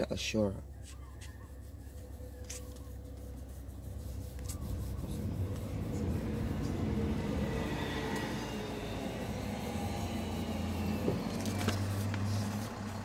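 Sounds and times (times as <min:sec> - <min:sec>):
motor vehicle rumble: 0:00.6 - 0:13.0
book pages turning: 0:02.3 - 0:03.2, 0:11.2 - 0:12.8.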